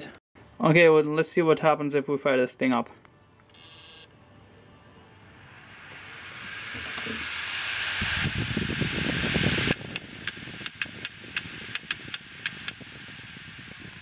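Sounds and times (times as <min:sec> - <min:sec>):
hard drive whirring: 0:03.6 - 0:14.0
hard drive clicks: 0:09.9 - 0:12.8.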